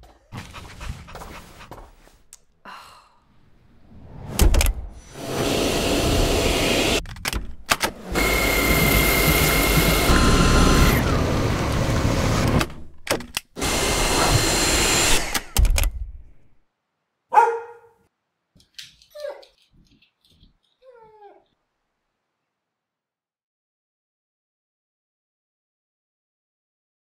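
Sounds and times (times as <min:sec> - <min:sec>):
cordless vacuum running: 0:05.2 - 0:07.0, 0:07.9 - 0:12.8, 0:13.6 - 0:15.6.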